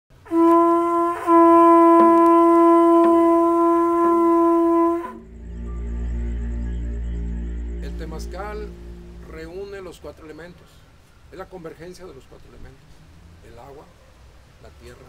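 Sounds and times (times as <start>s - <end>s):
conch shell horn blast: 0.1s - 10.0s
low steady drone: 2.3s - 10.7s.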